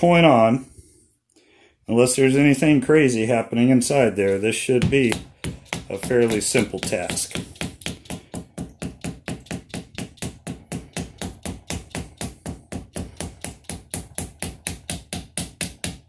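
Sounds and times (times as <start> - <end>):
hammer tapping on a punch: 4.3 - 16.0.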